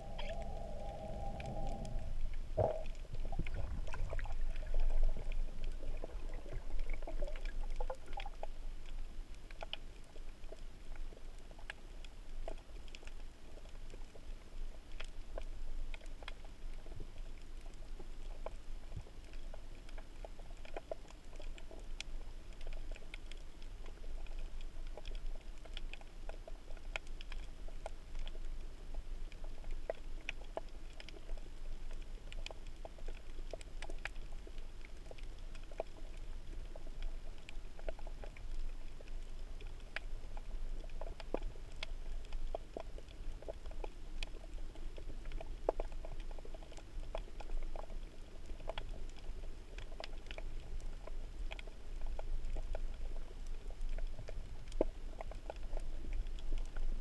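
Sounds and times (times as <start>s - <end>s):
low underwater rumble: 0.0s - 9.2s
sharp underwater crackling clicks: 0.1s - 57.0s.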